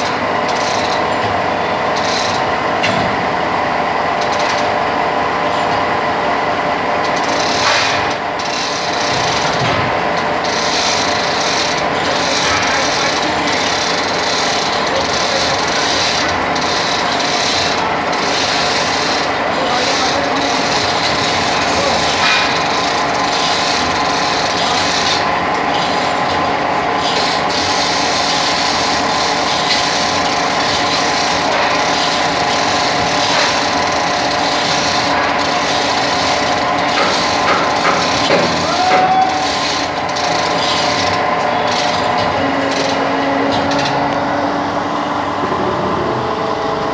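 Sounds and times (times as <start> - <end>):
chains rattling and ratcheting: 1.9 - 2.5, 7.1 - 43.1.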